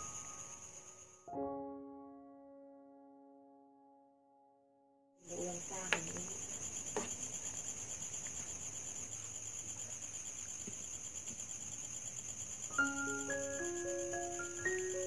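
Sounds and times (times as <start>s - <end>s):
crickets trilling: 0.0s - 1.3s, 5.2s - 15.0s.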